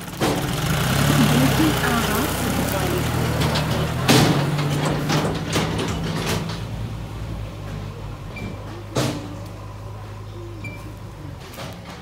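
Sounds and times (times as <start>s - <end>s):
tractor diesel engine running: 0.0s - 12.0s
metallic knocks and rattles: 2.4s - 6.8s.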